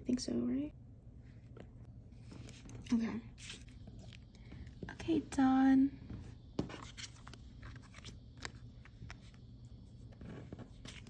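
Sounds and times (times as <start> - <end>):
photo cards clicking and tapping: 6.6 - 9.4.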